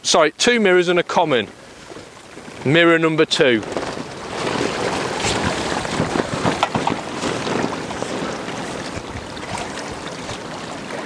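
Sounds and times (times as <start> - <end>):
water lapping at bank: 0.4 - 11.0
small splashes and clicks: 3.4 - 11.0
strong wind on microphone: 3.5 - 11.0.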